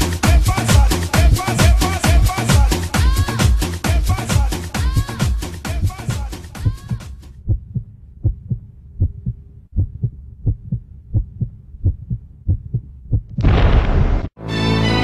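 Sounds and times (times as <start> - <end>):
heartbeat thumps: 3.0 - 3.6, 4.8 - 13.4.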